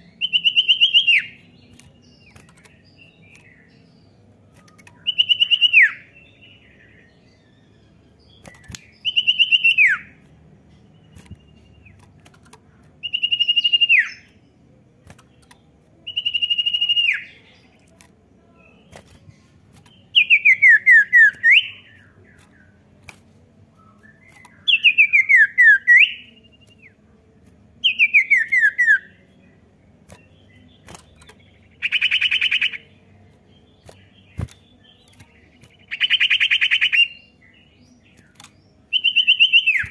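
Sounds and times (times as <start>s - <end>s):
bird whistling calls: 13.0s - 14.2s, 16.1s - 17.4s, 20.2s - 22.0s, 38.9s - 39.9s.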